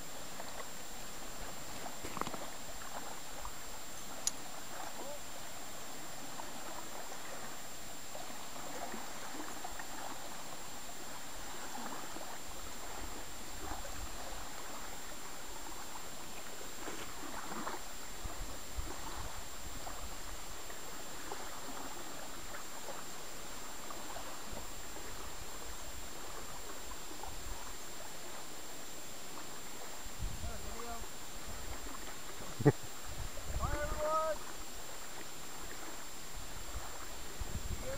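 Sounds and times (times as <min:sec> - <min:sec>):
small waves lapping on gravel: 0:00.0 - 0:37.9.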